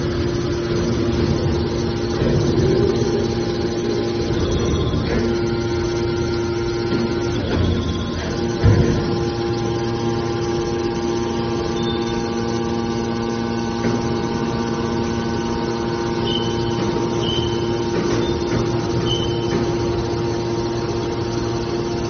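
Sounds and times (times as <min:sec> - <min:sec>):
hydraulic power unit humming: 0:00.0 - 0:22.0
short high squeals: 0:16.2 - 0:19.5.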